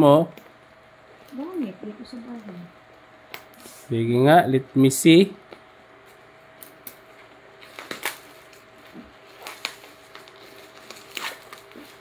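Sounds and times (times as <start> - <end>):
plastic wrap crinkling: 7.6 - 12.0.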